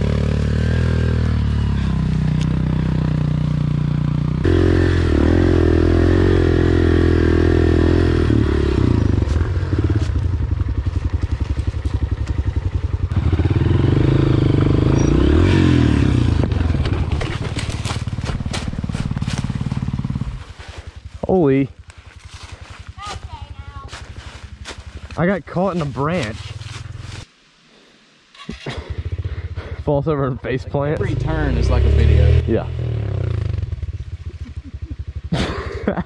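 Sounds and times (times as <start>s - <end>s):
dirt bike engine revving: 0.0s - 20.8s, 28.3s - 29.8s, 30.7s - 34.2s.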